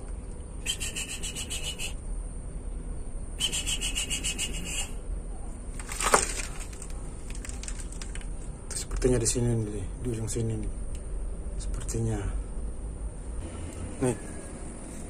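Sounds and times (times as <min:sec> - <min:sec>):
insect calling in rasping pulses: 0:00.0 - 0:05.2
faint high drone: 0:00.0 - 0:05.8, 0:09.6 - 0:15.0.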